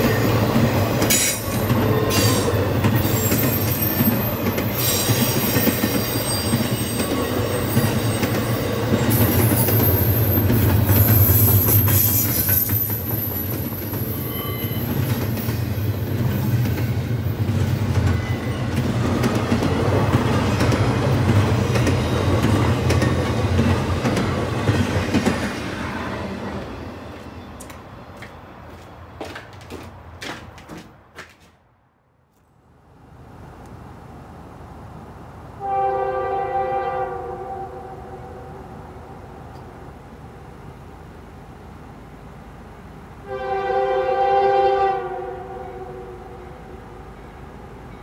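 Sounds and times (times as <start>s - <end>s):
freight train cars rumbling past: 0.0s - 31.4s, 32.9s - 48.0s
high wheel squeal: 1.1s - 15.7s.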